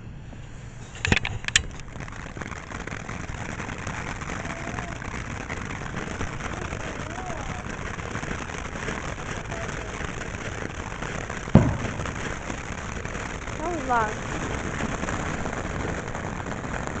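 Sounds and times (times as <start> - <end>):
firework fountain hissing: 0.1 - 17.0
sharp bang: 11.6 - 12.4.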